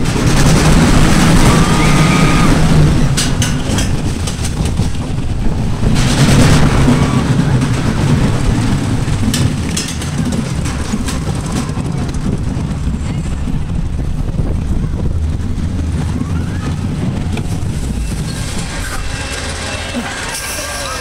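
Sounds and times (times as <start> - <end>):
roller coaster rumbling on rails: 0.0 - 21.0
sharp clatters: 0.0 - 21.0
high squeal: 17.9 - 21.0.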